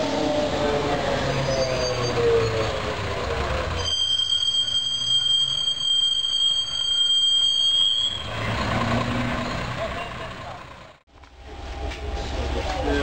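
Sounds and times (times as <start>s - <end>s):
trolleybus motor whine: 0.0s - 13.0s
high-pitched whistle: 1.3s - 2.8s, 3.8s - 8.6s.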